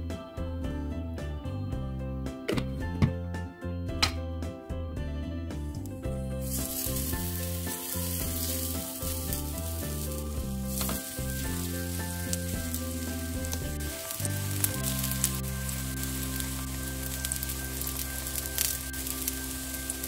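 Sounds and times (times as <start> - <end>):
background music: 0.0 - 20.0
hot oil sizzling in a pan: 6.3 - 20.0.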